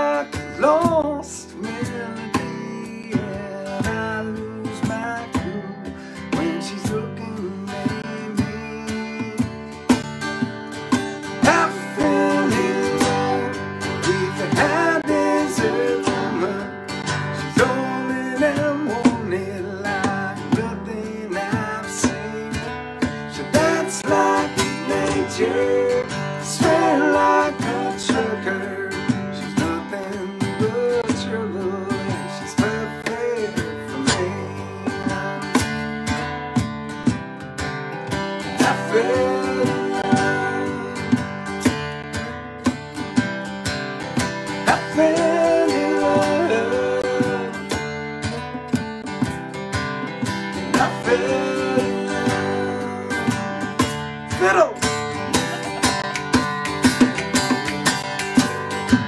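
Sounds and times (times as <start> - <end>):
acoustic guitar strumming: 0.0 - 59.0
voices singing together: 11.4 - 20.6, 23.2 - 31.3, 38.5 - 41.3, 44.6 - 47.9, 50.5 - 54.6.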